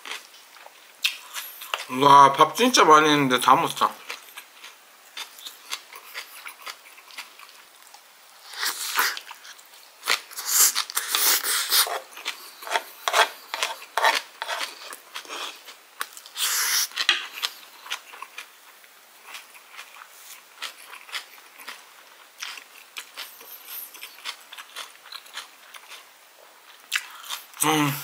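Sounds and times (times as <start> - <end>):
chewing: 4.0 - 18.5, 19.2 - 27.6
wooden spoon scraping grill pan: 12.6 - 14.9.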